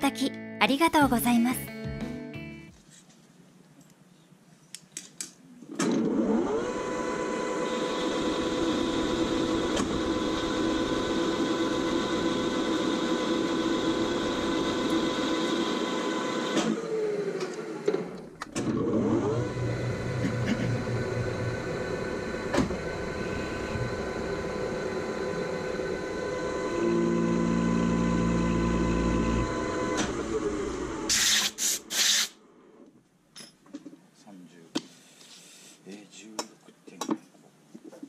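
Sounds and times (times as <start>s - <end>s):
lathe spindle whining: 6.0s - 31.1s
lathe tool cutting metal: 6.4s - 16.7s, 18.7s - 31.2s.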